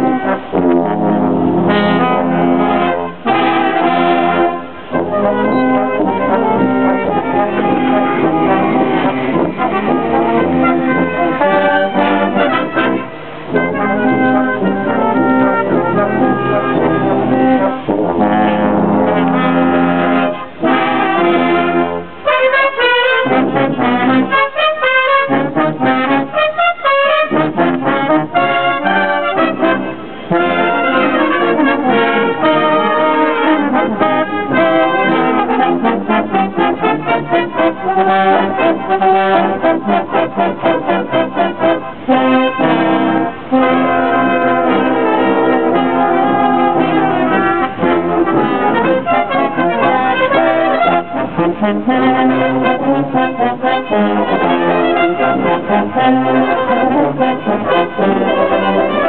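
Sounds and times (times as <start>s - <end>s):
brass band playing: 0.0s - 59.0s.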